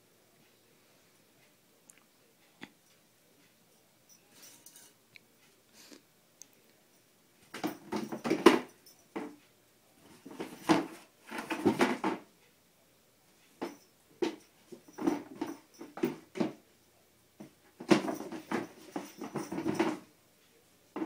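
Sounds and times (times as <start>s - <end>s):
cat batting cardboard canister: 10.1s - 12.2s, 17.4s - 20.0s.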